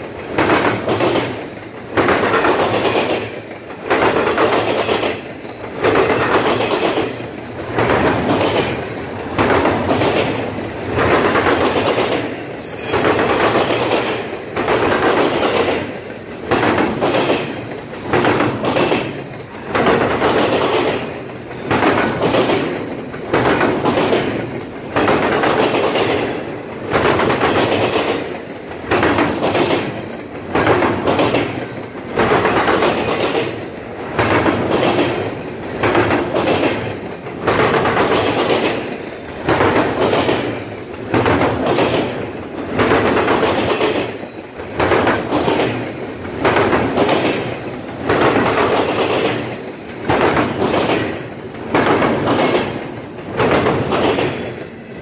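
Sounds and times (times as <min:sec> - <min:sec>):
train wheels clattering over crossing: 0:00.0 - 0:55.0.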